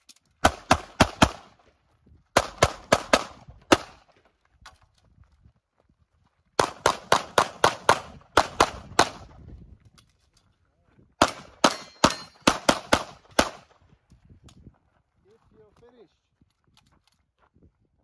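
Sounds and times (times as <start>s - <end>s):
handgun shots: 11.2s - 13.6s.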